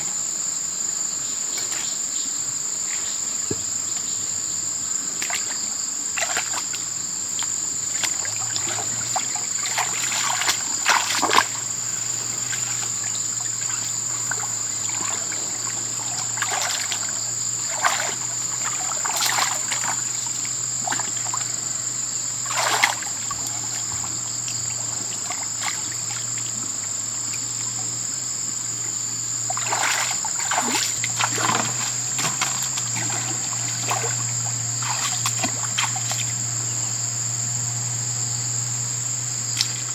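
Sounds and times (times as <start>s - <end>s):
high insect drone: 0.0s - 39.9s
water splashing and sloshing: 5.1s - 36.7s.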